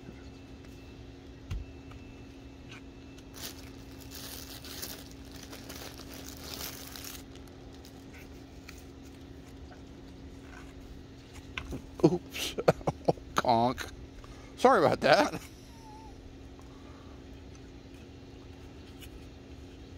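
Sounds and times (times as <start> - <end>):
low steady hum: 0.0 - 19.9
crinkling crackling rustle: 3.2 - 11.6.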